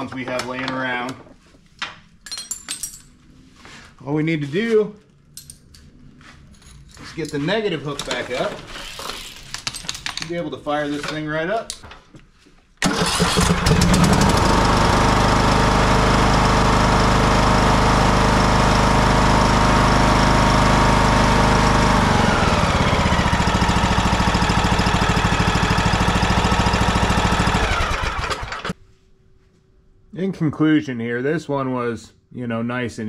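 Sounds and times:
mower engine running: 12.8s - 28.8s.

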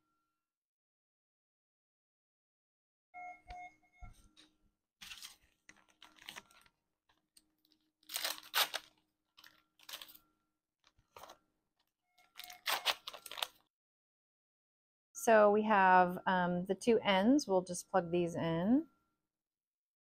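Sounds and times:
packaging tearing and crinkling: 5.0s - 6.7s, 8.0s - 10.2s, 12.4s - 13.6s.

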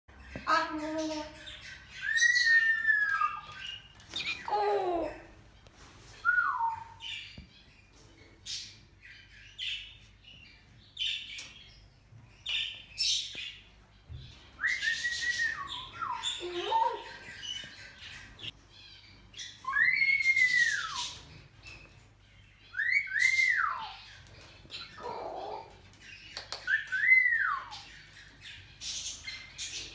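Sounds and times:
cockatoo whistling calls: 2.0s - 3.6s, 6.2s - 7.0s, 14.6s - 17.0s, 19.6s - 21.2s, 22.7s - 24.0s.

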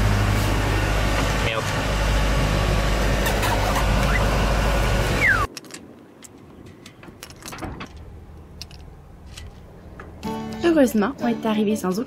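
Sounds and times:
short falling whistle: 5.2s - 5.5s.

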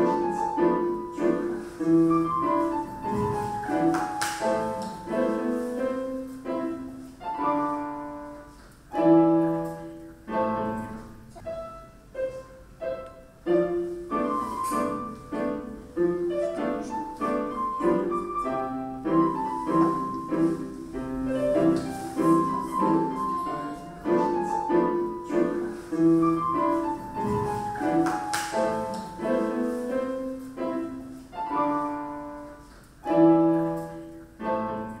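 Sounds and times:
classical piano music: 0.0s - 35.0s.

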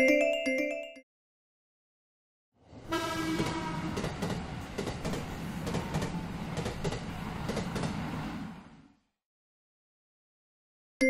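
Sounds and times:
train rumble: 2.6s - 9.1s
short horn tone: 2.9s - 4.0s
wheels clacking over rail joints: 3.3s - 8.2s.

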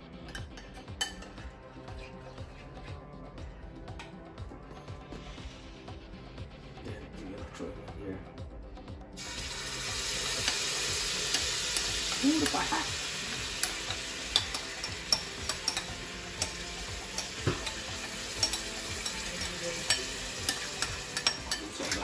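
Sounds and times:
curry sizzling in hot oil: 9.2s - 22.0s
spoon scraping a bowl: 13.6s - 22.0s.

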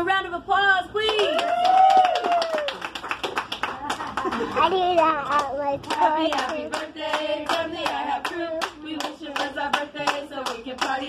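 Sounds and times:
people clapping: 1.0s - 11.0s
group singing: 6.0s - 11.0s.

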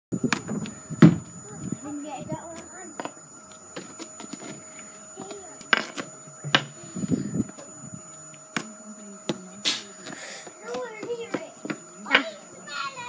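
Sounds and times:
ball bouncing on tarmac: 8.5s - 12.3s.

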